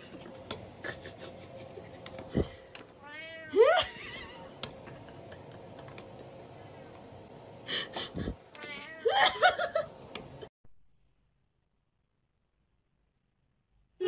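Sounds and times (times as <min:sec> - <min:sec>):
cat meowing: 0:03.0 - 0:03.6, 0:08.6 - 0:09.1.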